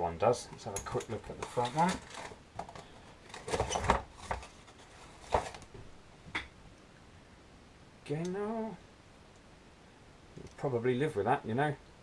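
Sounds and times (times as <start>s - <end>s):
cardboard box rustling: 1.4s - 5.7s.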